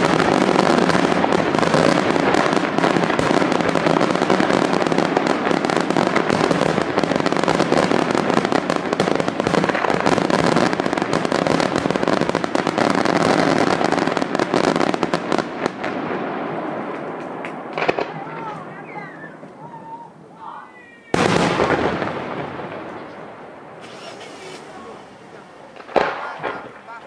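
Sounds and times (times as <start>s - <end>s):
fireworks crackling and banging: 0.0s - 27.0s.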